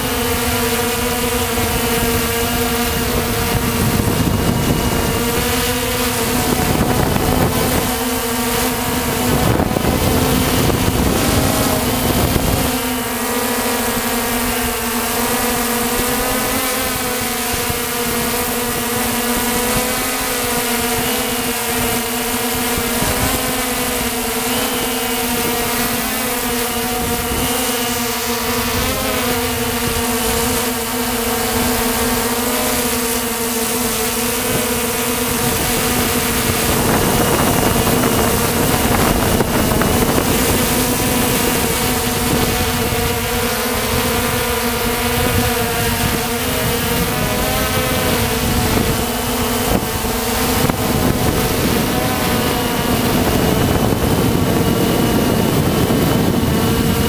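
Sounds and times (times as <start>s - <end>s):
drone motors and propellers humming: 0.0s - 57.0s
wind buffeting microphone: 0.1s - 13.3s, 33.3s - 57.0s.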